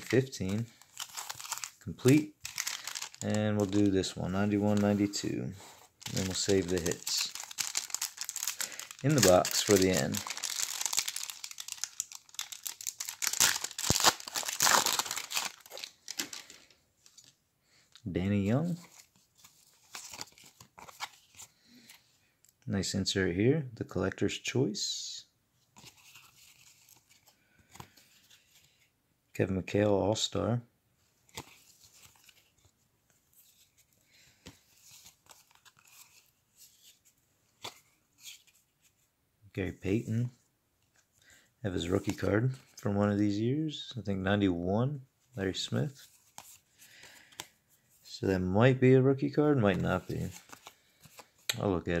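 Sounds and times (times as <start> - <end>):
wrapper crinkling and tearing: 0.0 - 5.3, 6.0 - 17.3
cards rustling: 0.0 - 22.1, 25.8 - 28.9, 31.2 - 39.0, 41.7 - 43.3, 45.7 - 48.1, 49.6 - 51.8.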